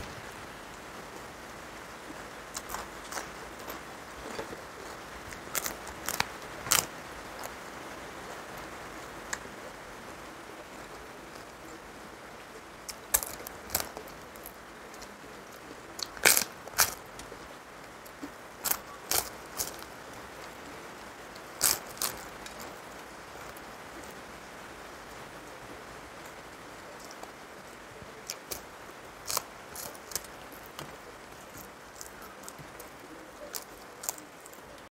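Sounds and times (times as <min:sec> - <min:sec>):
steady hiss: 0:00.0 - 0:34.9
crisp papad cracking: 0:02.5 - 0:07.6, 0:12.9 - 0:17.4, 0:18.1 - 0:20.6, 0:21.3 - 0:24.1, 0:28.2 - 0:34.9.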